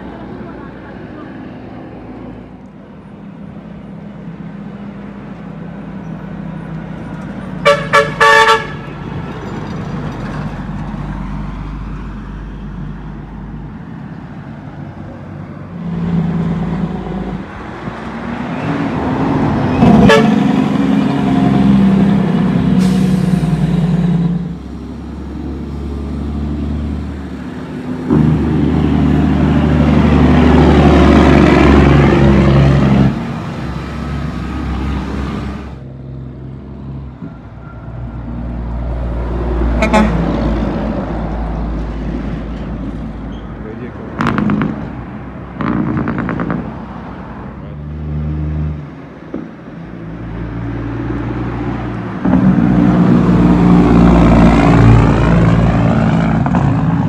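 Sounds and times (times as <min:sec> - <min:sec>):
trucks passing on road: 0:00.0 - 0:57.0
horn toots: 0:07.6 - 0:08.9, 0:19.8 - 0:20.5, 0:39.8 - 0:40.3.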